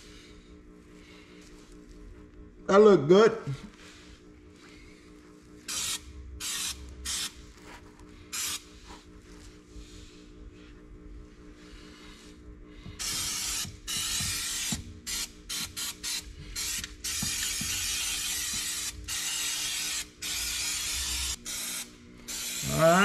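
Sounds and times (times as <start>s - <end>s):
aerosol spray can hissing: 5.7s - 7.4s, 8.3s - 8.7s, 13.0s - 22.9s.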